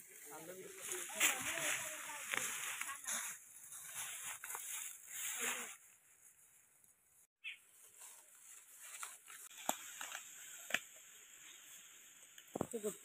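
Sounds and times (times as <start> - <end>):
sharp leaf crackles: 0.0 - 6.5, 7.8 - 13.0
footsteps crunching dry leaves: 0.0 - 6.6, 7.7 - 10.6.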